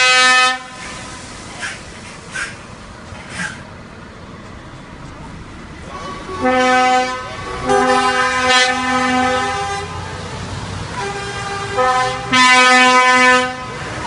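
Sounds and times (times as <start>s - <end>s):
truck horns blasting: 0.0s - 1.0s, 5.9s - 10.0s, 10.9s - 14.0s.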